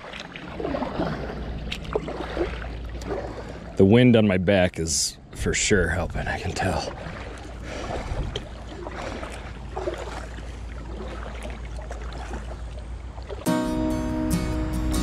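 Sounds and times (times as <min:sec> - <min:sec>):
paddle strokes splashing in water: 0:00.0 - 0:03.8, 0:06.4 - 0:13.5
wind rumble on microphone: 0:06.0 - 0:11.0
acoustic guitar music: 0:13.4 - 0:15.0.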